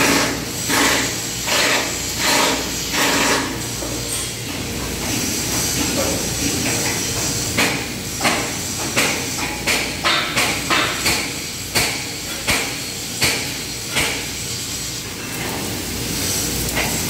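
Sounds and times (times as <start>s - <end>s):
hammer striking steel: 7.6s - 14.3s.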